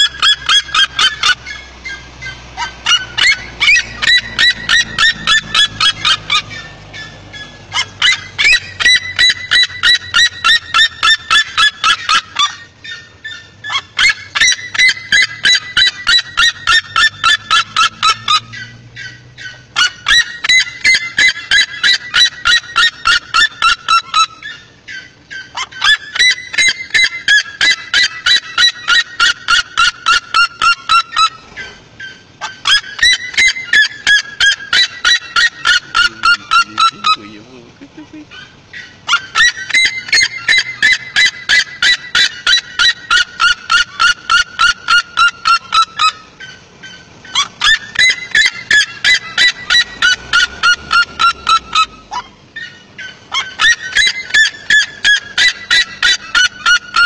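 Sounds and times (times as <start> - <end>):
bird shrill yelping calls: 0.0 - 57.0.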